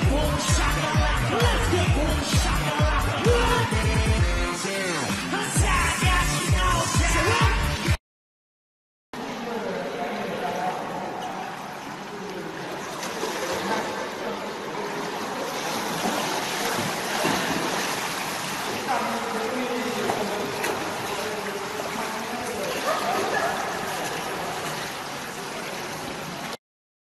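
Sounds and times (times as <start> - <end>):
running water: 9.2 - 26.6.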